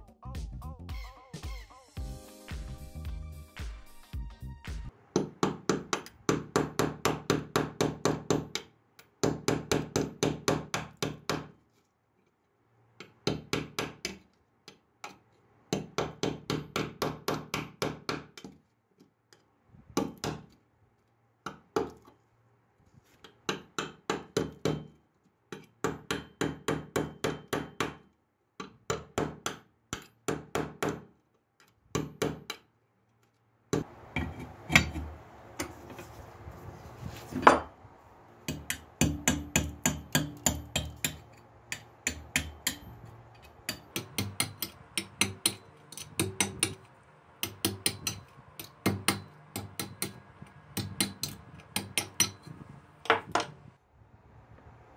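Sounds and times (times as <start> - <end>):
hammer tapping metal chisel: 5.2 - 11.5, 33.7 - 36.0, 38.5 - 50.2, 50.8 - 53.5.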